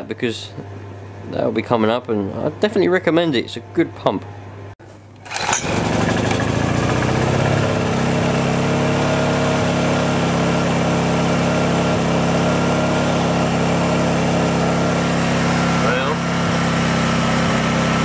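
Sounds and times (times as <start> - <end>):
generator engine running: 5.2 - 18.0.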